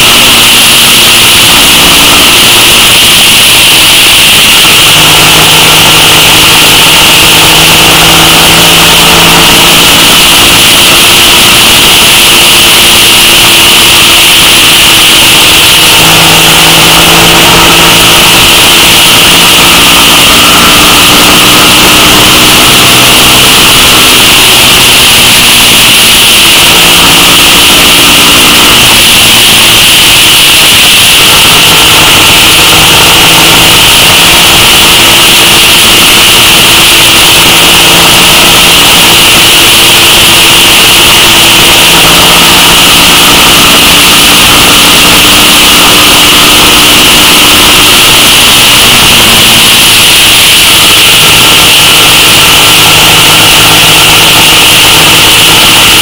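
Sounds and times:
motorcycle engine running: 0:04.0 - 0:10.6, 0:16.1 - 0:17.8.

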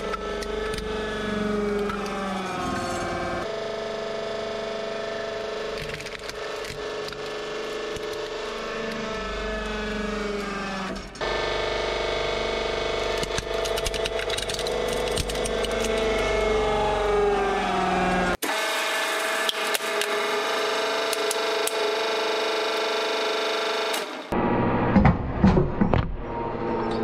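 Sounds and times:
hydraulic pump motor humming: 0:00.0 - 0:27.0
plastic cracking and snapping: 0:05.7 - 0:08.3, 0:13.2 - 0:16.2.

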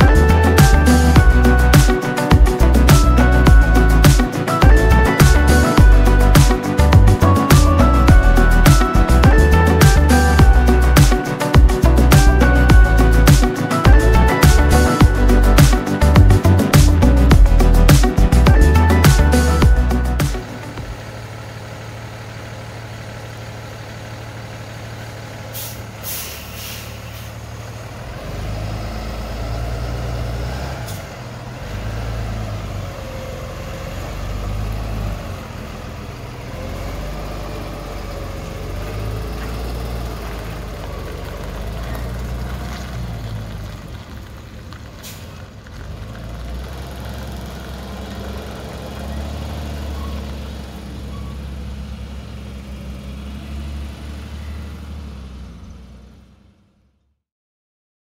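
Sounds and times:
truck diesel engine running: 0:00.0 - 0:56.8
air brake hisses: 0:25.5 - 0:27.4, 0:45.0 - 0:45.4.

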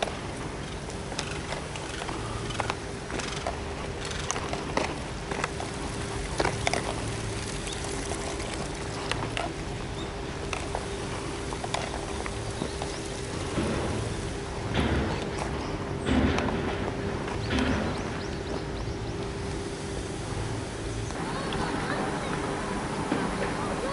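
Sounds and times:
faint steady hum: 0:00.0 - 0:23.9.

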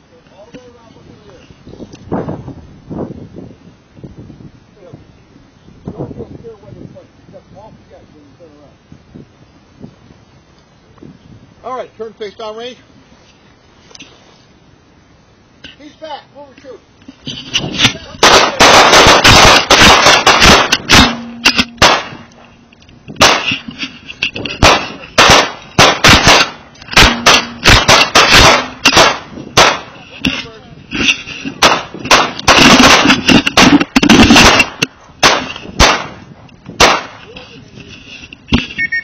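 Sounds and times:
handguns firing: 0:18.2 - 0:22.3, 0:23.2 - 0:23.6, 0:24.6 - 0:30.0, 0:31.6 - 0:36.2, 0:36.8 - 0:37.2.

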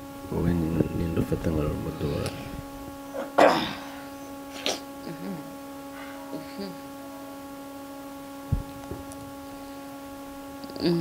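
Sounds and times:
electrical hum: 0:00.0 - 0:11.0
woman sniffing: 0:03.4 - 0:04.9
woman murmuring: 0:04.6 - 0:05.6, 0:06.2 - 0:06.9, 0:10.6 - 0:11.0.

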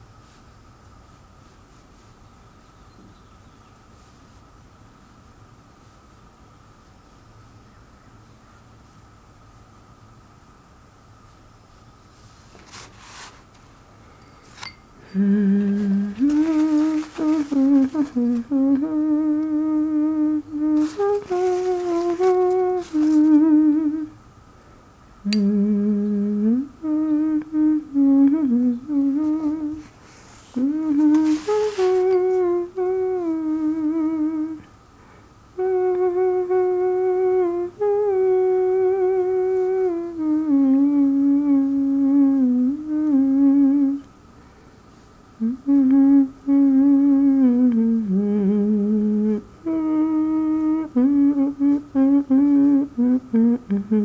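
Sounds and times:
person humming a melody: 0:15.0 - 0:24.2, 0:25.2 - 0:34.8, 0:35.5 - 0:44.2, 0:45.4 - 0:54.0.

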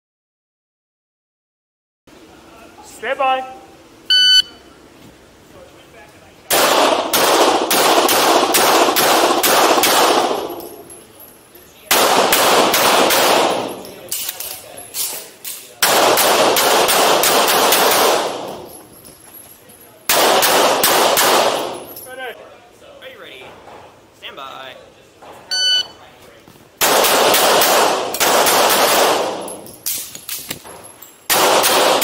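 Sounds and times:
handgun shots echoing indoors: 0:06.5 - 0:11.0, 0:11.9 - 0:18.8, 0:20.1 - 0:22.1, 0:26.8 - 0:32.0.

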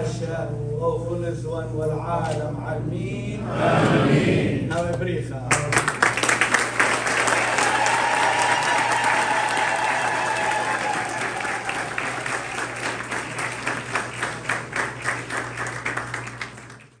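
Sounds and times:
congregation applauding: 0:05.5 - 0:17.0.

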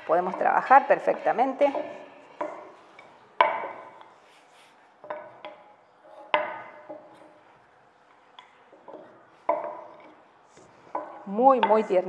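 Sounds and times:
rolling pin knocking on stone: 0:03.4 - 0:04.1.

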